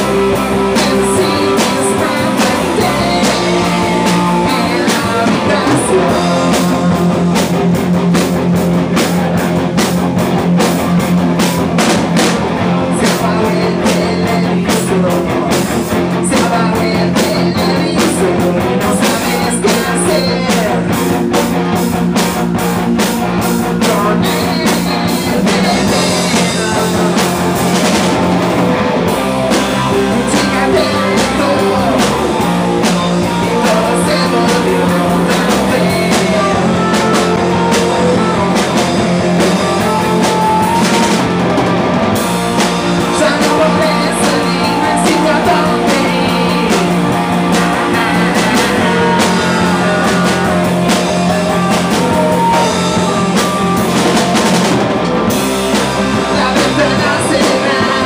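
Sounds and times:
person singing: 0:00.0 - 0:10.0, 0:11.4 - 0:21.5, 0:23.4 - 0:54.8, 0:55.6 - 0:58.0
rock band playing: 0:00.0 - 0:58.0.

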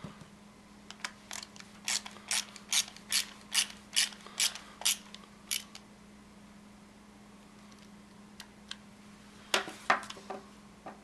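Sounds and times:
ratcheting screwdriver clicking: 0:01.0 - 0:05.8.

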